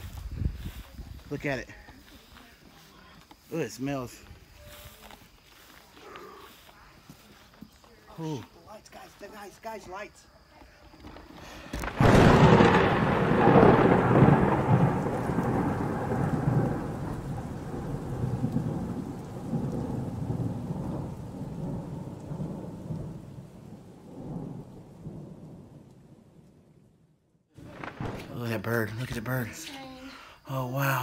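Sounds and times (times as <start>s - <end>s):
thunder rumble: 0.0s - 2.4s, 10.9s - 29.7s.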